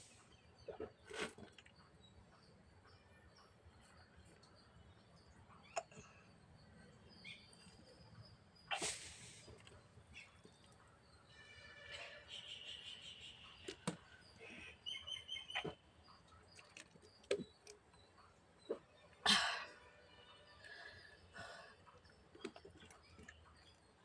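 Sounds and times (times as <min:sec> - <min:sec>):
loud breathy exhale: 0:08.7 - 0:09.5.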